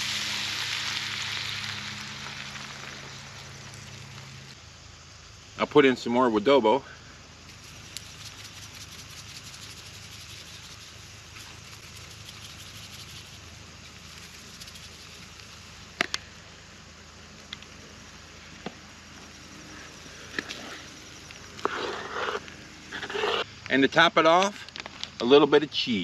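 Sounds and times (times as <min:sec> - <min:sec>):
food sizzling in a skillet: 0:00.0 - 0:04.6.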